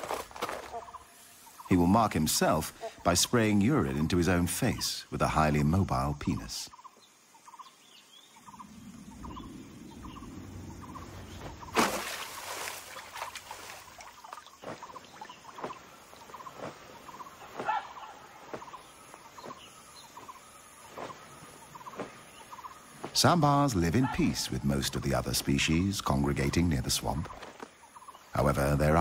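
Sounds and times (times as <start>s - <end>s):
animal calls: 13.0s - 25.9s.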